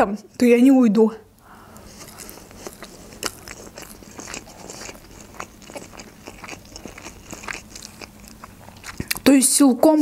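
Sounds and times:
person chewing food: 0:01.4 - 0:09.3.

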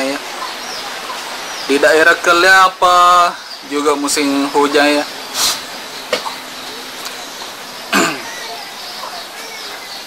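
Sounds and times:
steady background hiss: 0:00.0 - 0:10.0
breathy hiss: 0:05.0 - 0:07.0.

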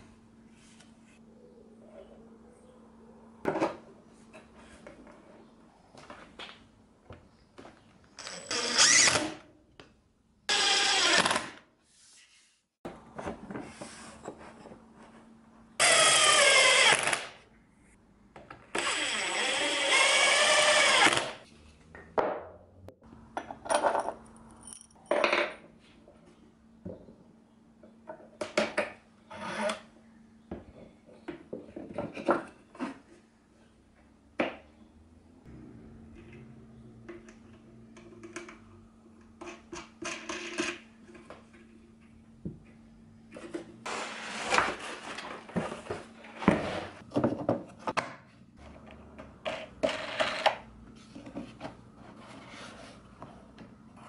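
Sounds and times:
power drill whining: 0:18.8 - 0:21.3.

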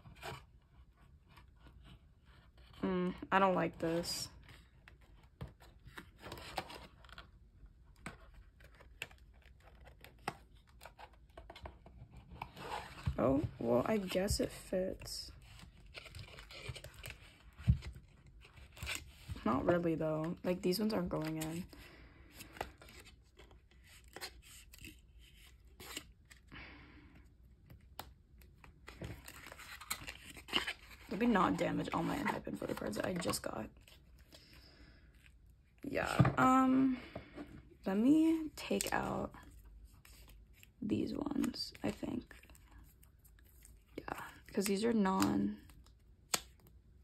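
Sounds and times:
plastic sleeves rustling and clicking: 0:04.4 - 0:13.2, 0:15.3 - 0:21.7, 0:27.6 - 0:34.5
plastic sleeves rubbing: 0:28.8 - 0:34.4.

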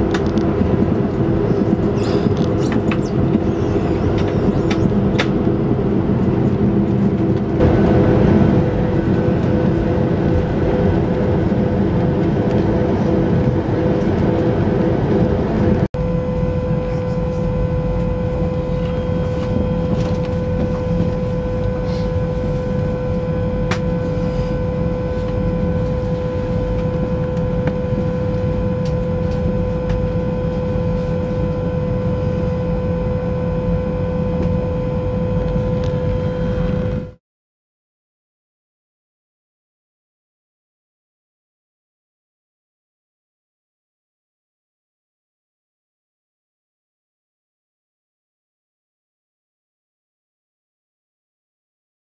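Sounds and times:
aircraft cabin rumbling drone: 0:00.0 - 0:37.2
jet engine whine: 0:00.0 - 0:37.2.

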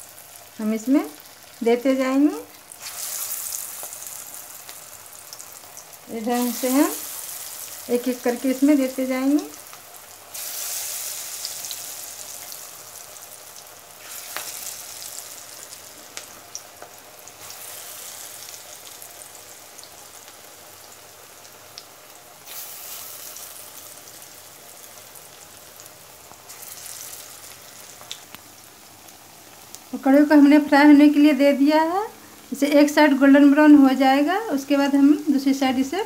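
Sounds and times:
pakoras sizzling in hot oil: 0:00.0 - 0:36.0.

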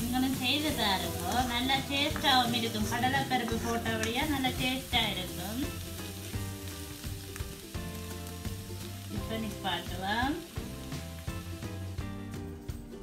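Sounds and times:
background music: 0:00.0 - 0:13.0
cabbage sizzling: 0:00.0 - 0:13.0.

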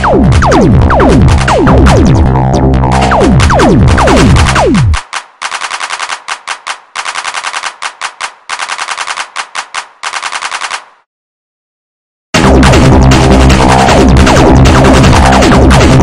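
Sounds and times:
distorted electronic music: 0:00.0 - 0:05.0, 0:12.4 - 0:16.0
rapid-fire sharp bursts: 0:00.0 - 0:11.0, 0:12.4 - 0:16.0.

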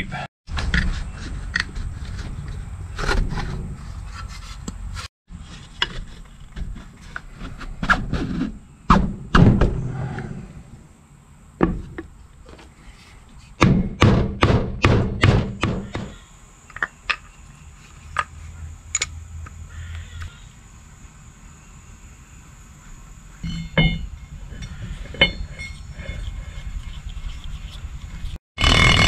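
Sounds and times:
metal parts being struck: 0:23.4 - 0:25.9.

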